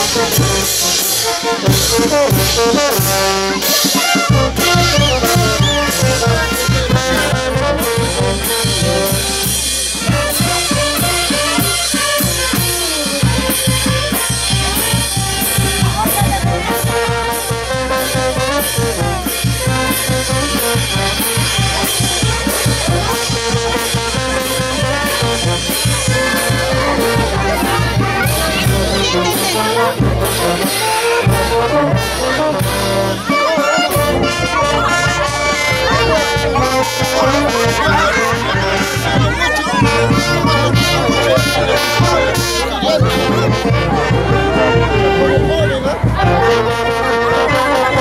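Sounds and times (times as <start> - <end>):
brass band playing dance music: 0.0 - 48.0
drum beat: 0.0 - 48.0.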